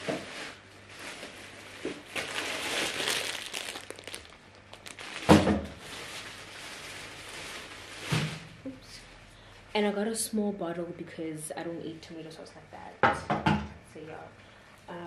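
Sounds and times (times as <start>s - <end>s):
plastic packaging crinkling: 0.2s - 8.4s.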